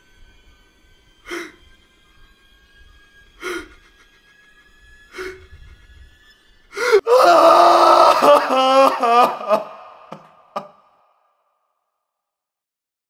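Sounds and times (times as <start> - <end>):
man sobbing: 3.4 - 4.1, 5.2 - 5.4, 6.8 - 10.8.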